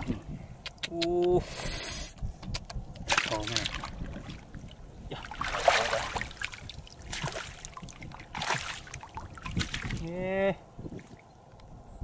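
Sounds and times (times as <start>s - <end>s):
hands splashing in muddy water: 5.1s - 10.0s.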